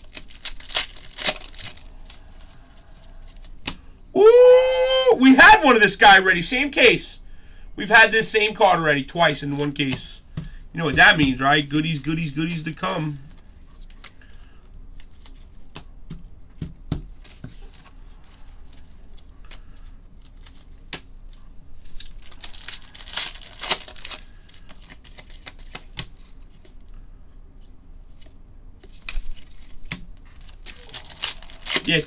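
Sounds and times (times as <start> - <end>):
cards clicking and rustling: 0.0 - 2.3, 21.9 - 26.8, 28.2 - 32.0
foil wrappers crinkling and tearing: 0.0 - 3.6, 18.2 - 20.9, 21.8 - 26.0, 28.8 - 32.0.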